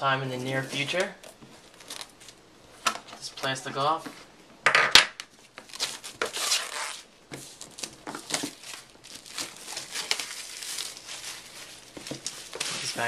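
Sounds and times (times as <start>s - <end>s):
plastic shrink-wrap crinkling: 0.5s - 2.4s, 5.4s - 13.0s.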